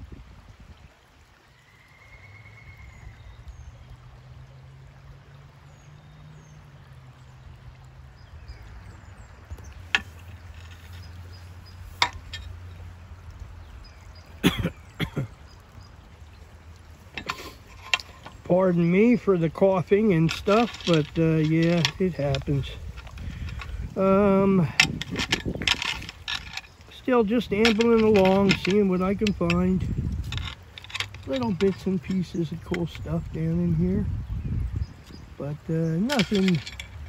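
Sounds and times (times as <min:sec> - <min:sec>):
creek water trickling over stones: 0:00.0 - 0:37.0
man coughing: 0:14.4 - 0:15.3.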